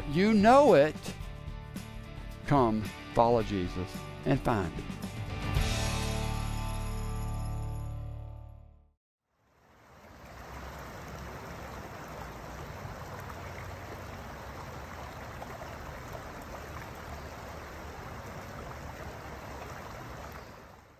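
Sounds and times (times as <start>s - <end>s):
stream water rushing: 9.4s - 20.9s.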